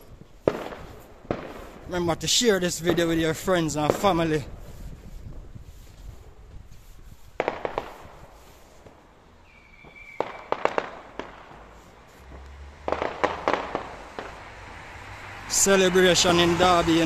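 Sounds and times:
fireworks crackling bangs: 0:00.0 - 0:04.6, 0:07.3 - 0:14.7.

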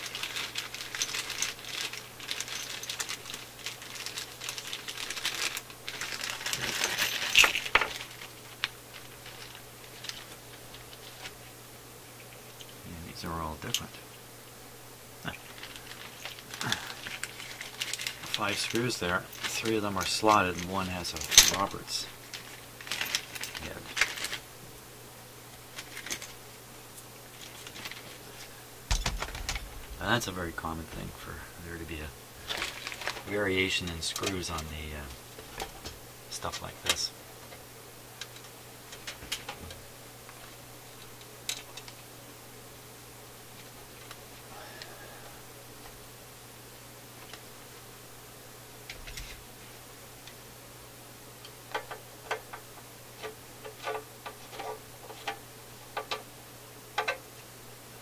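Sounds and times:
metal screws clinking in bag: 0:00.0 - 0:11.3, 0:15.4 - 0:24.4, 0:25.8 - 0:26.4, 0:32.5 - 0:34.6
plastic bag crinkling: 0:00.0 - 0:11.4, 0:15.3 - 0:24.4, 0:25.7 - 0:26.4, 0:27.3 - 0:35.0.

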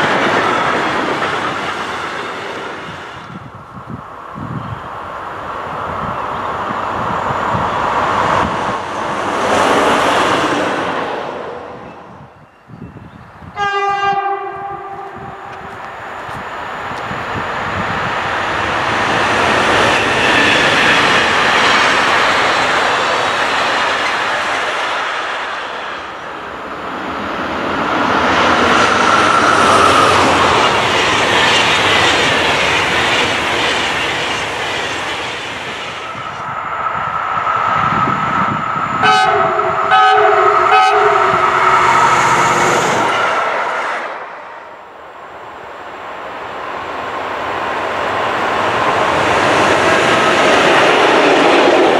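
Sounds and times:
trains rumbling and clattering: 0:00.0 - 0:51.9
train horn blasts: 0:13.5 - 0:15.7, 0:39.0 - 0:42.2.

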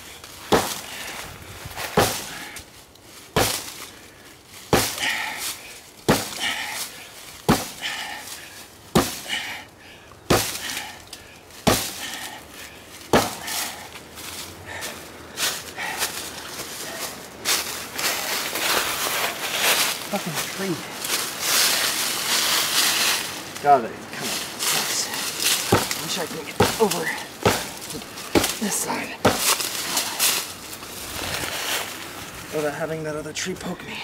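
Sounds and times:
axe chopping tree trunk: 0:00.5 - 0:00.9, 0:01.9 - 0:02.4, 0:03.3 - 0:03.8, 0:04.7 - 0:05.2, 0:06.0 - 0:06.8, 0:07.4 - 0:08.0, 0:08.9 - 0:09.3, 0:10.2 - 0:10.9, 0:11.6 - 0:12.3, 0:13.0 - 0:13.8, 0:25.4 - 0:30.4.

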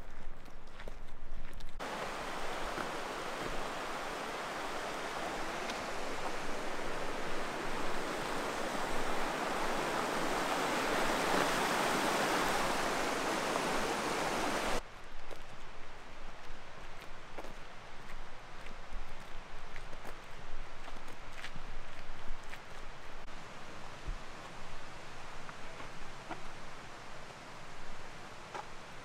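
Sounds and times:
creek rushing over rocks: 0:01.8 - 0:14.8.

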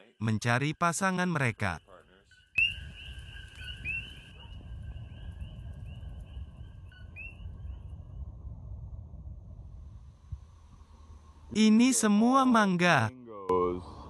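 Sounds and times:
frogs calling: 0:02.2 - 0:07.3
steady low rumble: 0:04.3 - 0:11.6.

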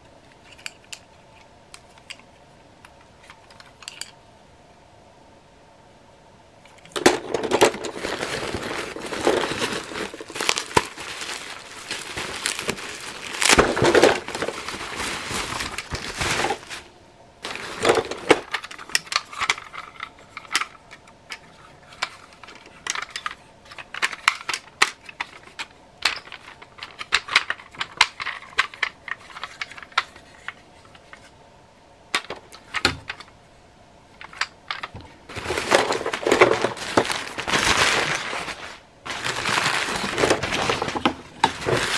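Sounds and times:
newspaper rustling and crackling: 0:06.8 - 0:20.7, 0:35.3 - 0:41.9
plastic toys clicking: 0:17.9 - 0:30.6.

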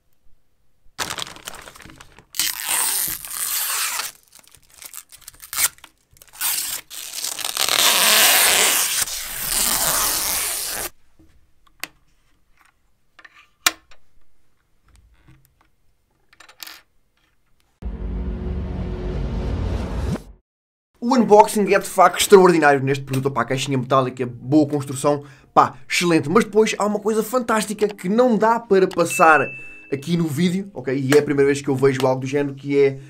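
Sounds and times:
plastic bag crinkling: 0:01.0 - 0:08.5.

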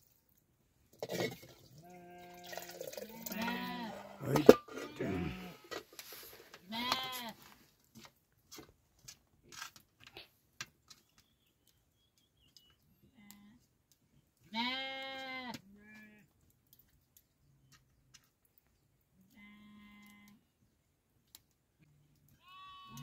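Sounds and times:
sheep bleating: 0:01.8 - 0:05.7, 0:06.7 - 0:07.4, 0:14.5 - 0:16.3, 0:22.4 - 0:23.0.

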